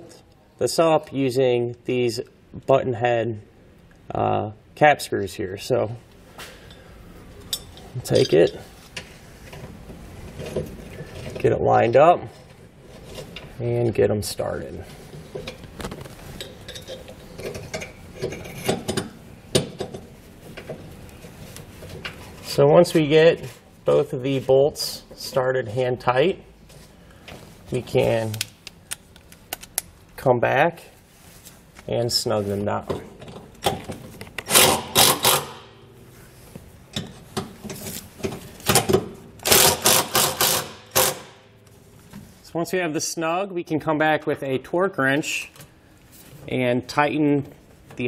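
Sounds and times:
cordless impact driver hammering: 0:34.5 - 0:35.7, 0:39.4 - 0:41.4.

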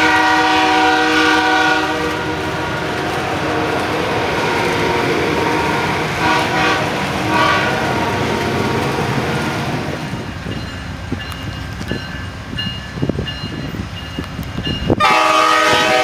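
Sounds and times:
train horn blasts: 0:00.0 - 0:08.9, 0:15.0 - 0:16.0
train wheels rumbling on rails: 0:00.0 - 0:16.0.

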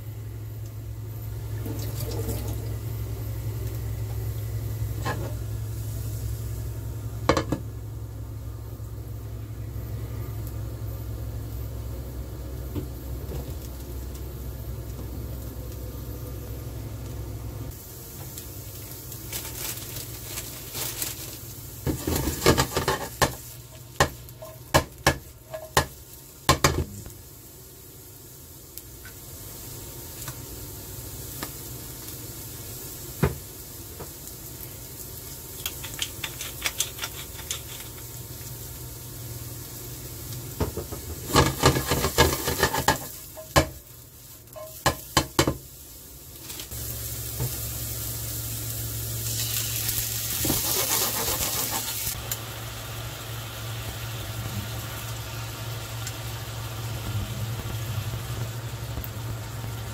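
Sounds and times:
mushrooms sizzling in frying pan: 0:00.0 - 0:59.9
spatula scraping and tapping pan: 0:41.3 - 0:43.8.

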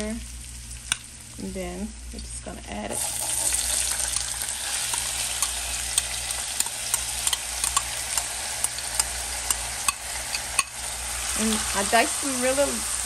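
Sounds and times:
potatoes sizzling in oil: 0:00.0 - 0:13.0
metal spoon clinking on bowl: 0:04.8 - 0:10.8.

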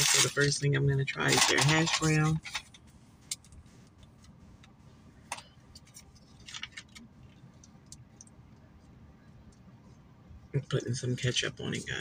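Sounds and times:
food packaging crinkling: 0:01.2 - 0:02.8, 0:06.2 - 0:07.0.

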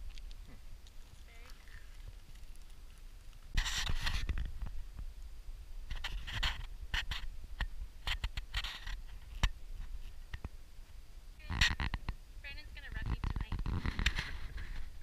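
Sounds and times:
low wind rumble: 0:00.0 - 0:15.0
camera handling scraping and rustling: 0:03.5 - 0:04.7, 0:05.9 - 0:07.3, 0:08.0 - 0:10.2, 0:13.2 - 0:15.0.

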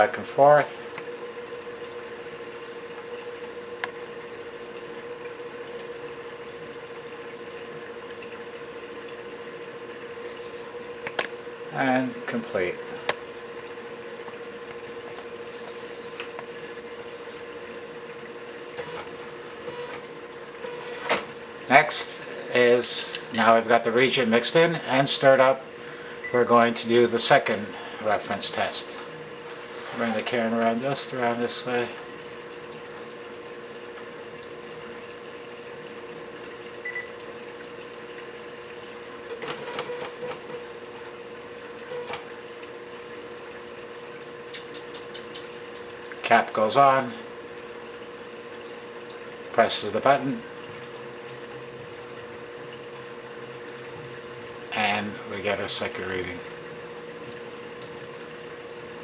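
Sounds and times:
mechanical hum: 0:00.0 - 0:59.0
electronic device humming: 0:26.1 - 0:26.7, 0:36.7 - 0:38.8
high-pitched electronic beeps: 0:26.2 - 0:26.5, 0:36.8 - 0:37.2.

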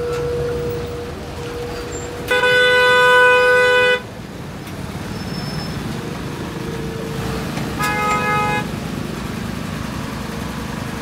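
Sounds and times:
vehicle horn blasting: 0:02.2 - 0:04.1, 0:07.8 - 0:08.7
engines running: 0:04.0 - 0:11.0.

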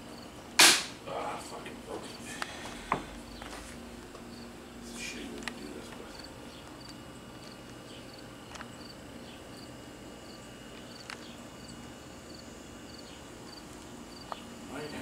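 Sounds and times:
cricket chirping: 0:00.0 - 0:00.4, 0:04.3 - 0:04.6, 0:06.1 - 0:15.0.

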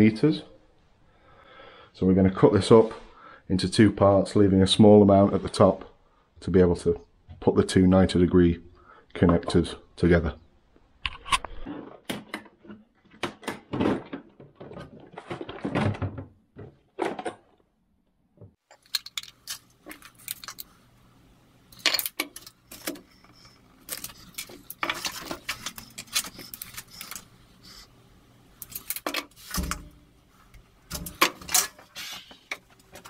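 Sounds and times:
plastic parts clicking and rattling: 0:18.7 - 0:20.8, 0:21.7 - 0:27.8, 0:28.6 - 0:33.0.

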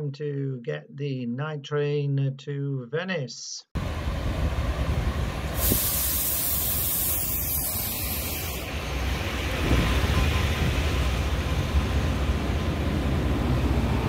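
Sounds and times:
diesel locomotive rumbling: 0:03.8 - 0:14.0
air hissing: 0:05.5 - 0:08.8.

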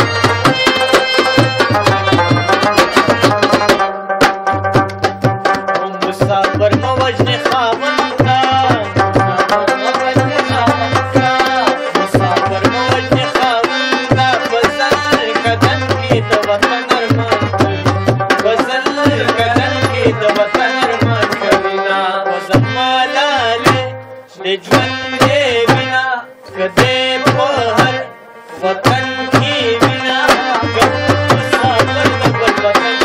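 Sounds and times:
hand drum fast rhythm: 0:00.0 - 0:21.8, 0:23.4 - 0:24.0, 0:24.7 - 0:26.0, 0:26.6 - 0:28.1, 0:28.7 - 0:33.0.

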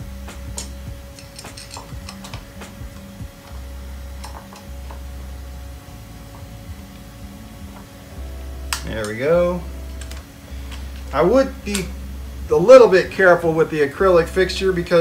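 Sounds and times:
faint steady hum: 0:00.0 - 0:15.0
hex key clicks and clinks: 0:00.5 - 0:03.6.

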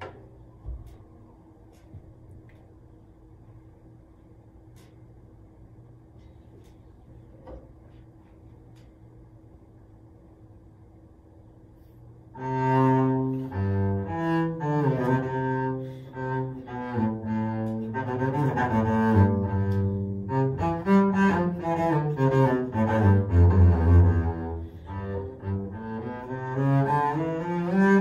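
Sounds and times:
bowed double bass: 0:12.3 - 0:28.0.

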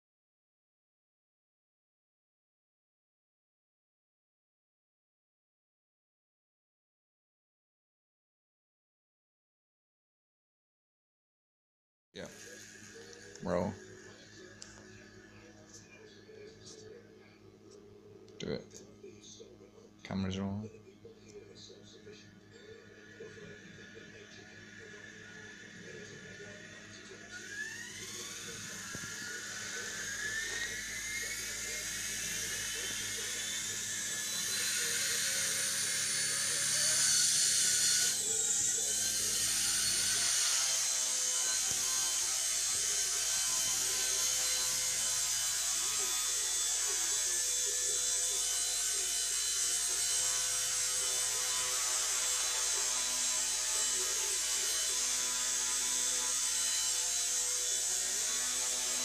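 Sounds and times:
toy helicopter rotor whirring: 0:12.2 - 0:17.0, 0:21.4 - 0:59.0.

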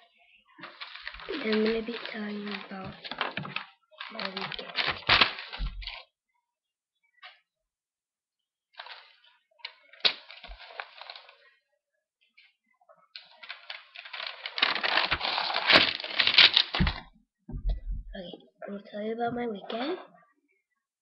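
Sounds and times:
paper rustling and crackling: 0:00.6 - 0:06.1, 0:08.8 - 0:11.5, 0:13.2 - 0:17.1.

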